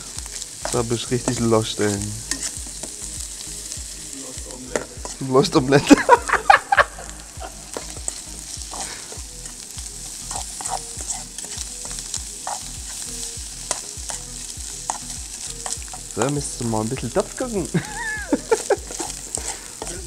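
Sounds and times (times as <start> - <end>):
meat sizzling in a pan: 0.0 - 20.0
fork scraping a pan: 0.2 - 3.1, 4.7 - 5.3, 7.7 - 16.2, 18.4 - 20.0.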